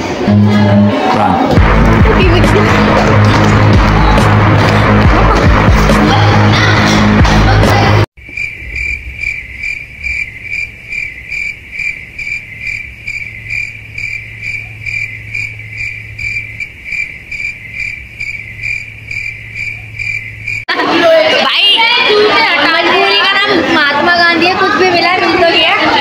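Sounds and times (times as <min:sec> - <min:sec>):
cricket chirping: 0:08.2 - 0:20.7.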